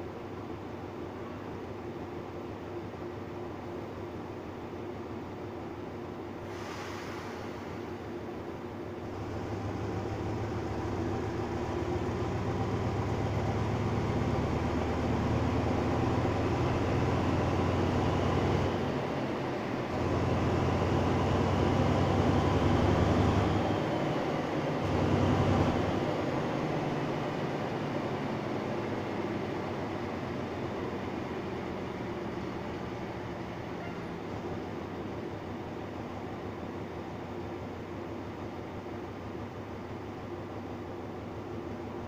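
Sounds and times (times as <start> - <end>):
diesel train engine running: 0.0 - 42.0.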